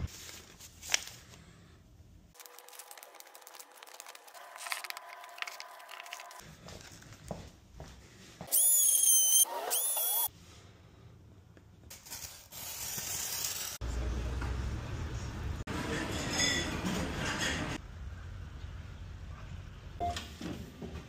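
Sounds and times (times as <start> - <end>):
paper sleeves rustling: 0.0 - 1.6, 2.4 - 7.3
oscillating multi-tool whining: 8.5 - 10.3.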